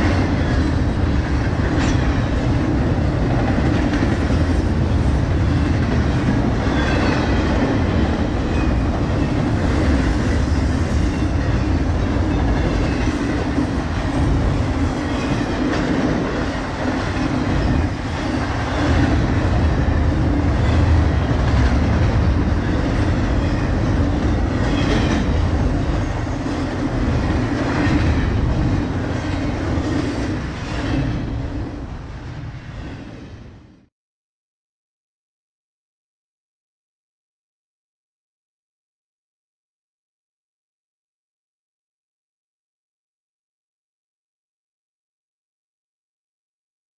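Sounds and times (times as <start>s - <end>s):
freight train rumbling past: 0.0s - 33.9s.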